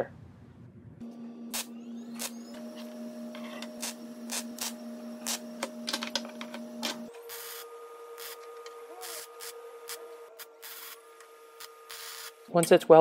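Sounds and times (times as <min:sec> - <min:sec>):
steady hum: 0:00.4 - 0:13.0.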